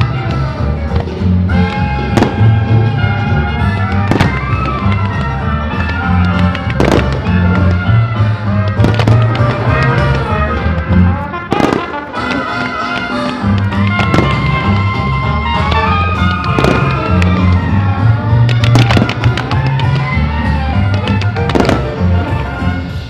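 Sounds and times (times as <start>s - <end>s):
loud instrumental music: 0.0s - 23.0s
firework shells bursting: 0.9s - 22.3s.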